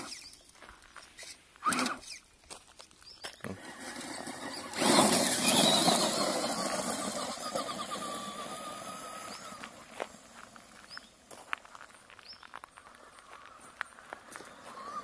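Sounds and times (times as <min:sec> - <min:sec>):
tyres crunching gravel: 0:00.0 - 0:15.0
electric motor whining: 0:03.5 - 0:10.8, 0:14.2 - 0:15.0.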